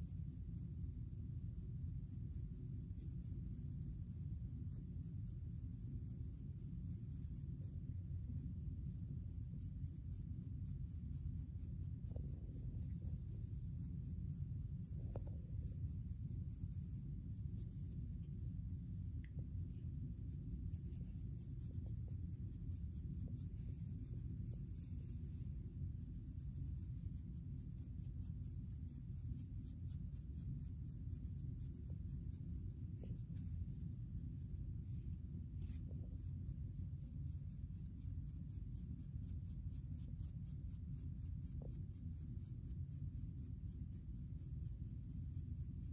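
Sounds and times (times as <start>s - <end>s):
steady low rumble: 0.0s - 45.9s
comb scratching through hair: 19.4s - 45.9s.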